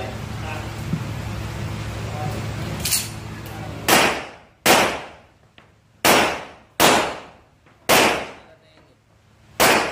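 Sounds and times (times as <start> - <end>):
pistol shots echoing: 3.9 - 5.3, 6.0 - 8.6, 9.6 - 9.9.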